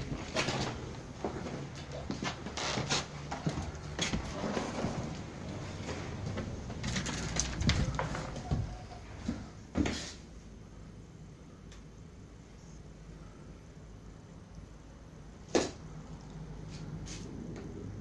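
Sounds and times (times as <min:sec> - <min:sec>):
footsteps on concrete floor: 0:00.0 - 0:06.8.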